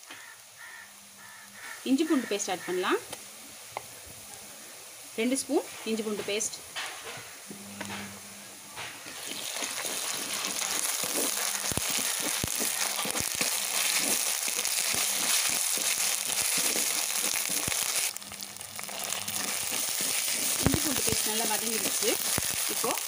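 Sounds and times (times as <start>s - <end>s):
onions sizzling in hot oil: 0.0s - 7.5s, 8.8s - 23.0s
wooden spatula scraping pot: 9.1s - 18.1s, 18.9s - 23.0s.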